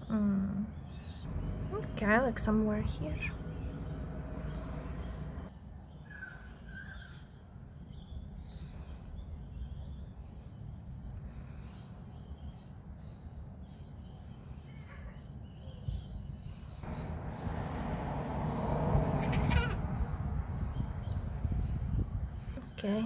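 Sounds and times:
bird chirps: 0.0 - 17.5
low rumble: 1.2 - 5.5, 16.8 - 22.6
rushing noise: 16.8 - 21.6.

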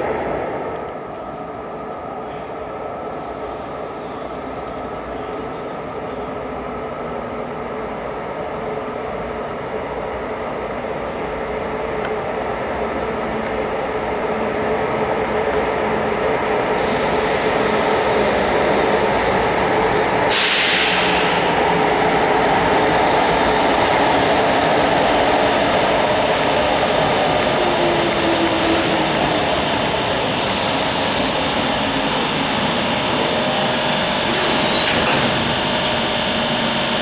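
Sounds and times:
short hiss of air: 20.3 - 21.4
electric train running: 20.9 - 37.0.

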